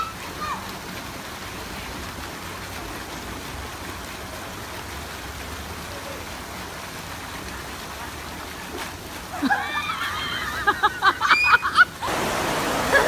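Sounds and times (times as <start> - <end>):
water rushing down slide: 0.0 - 13.0.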